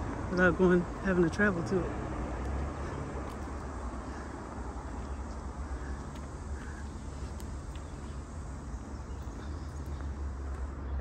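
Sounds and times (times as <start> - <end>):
steady low rumble: 0.0 - 11.0
faint scattered ticks: 2.4 - 11.0.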